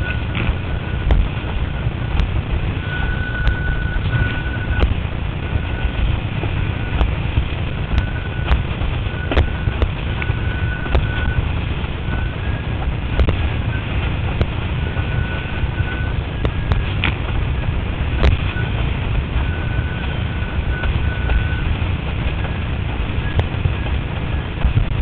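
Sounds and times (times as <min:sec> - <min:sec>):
water rushing and spraying: 0:00.0 - 0:25.0
wind rumble on microphone: 0:00.0 - 0:25.0
thin high whistle: 0:02.8 - 0:04.8.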